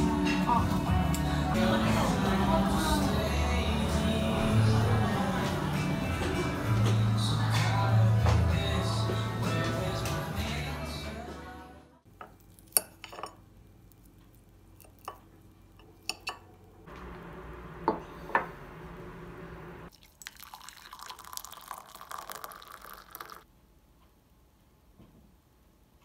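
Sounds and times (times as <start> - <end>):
fork clinking on ceramic plate: 12.7 - 13.4, 15.8 - 16.5.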